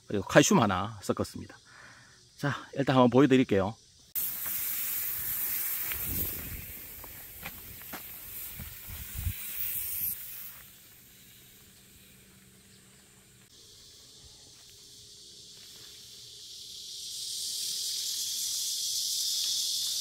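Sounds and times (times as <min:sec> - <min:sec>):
high insect chorus: 0:00.0 - 0:20.0
sprayer wand hissing spray: 0:04.2 - 0:12.5.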